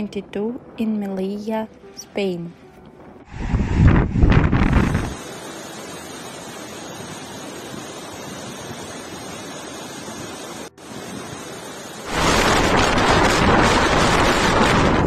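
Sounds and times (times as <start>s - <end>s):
wind and surf rushing: 3.0s - 15.0s
storm water rushing: 3.3s - 15.0s.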